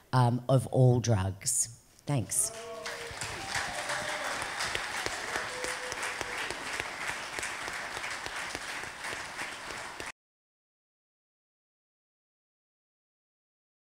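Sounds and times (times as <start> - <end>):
audience applauding: 2.4 - 10.1.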